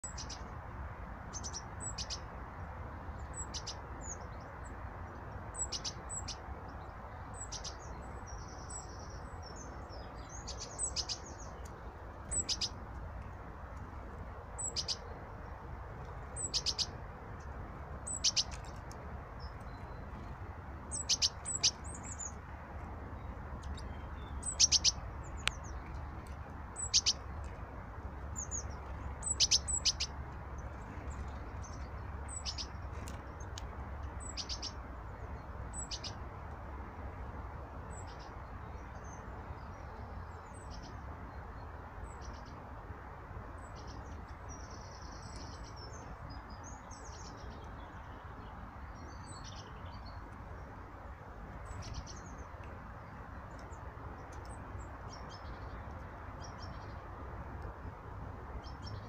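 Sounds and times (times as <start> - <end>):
songbirds chirping: 0.0 - 59.0.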